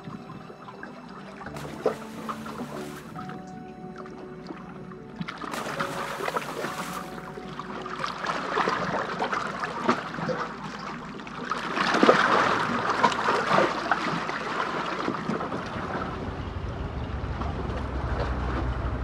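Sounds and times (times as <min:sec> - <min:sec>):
water lapping against rocks: 0:01.5 - 0:03.3, 0:05.4 - 0:10.6.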